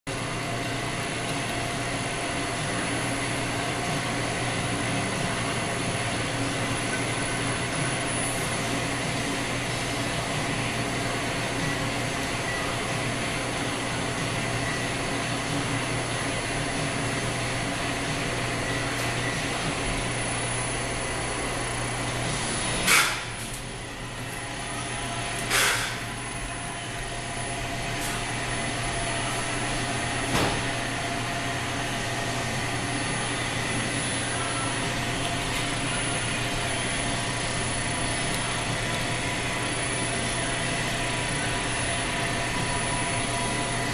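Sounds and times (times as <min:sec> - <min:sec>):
grinding machine humming: 0:00.1 - 0:43.9
sharp machine clack: 0:22.8 - 0:23.4.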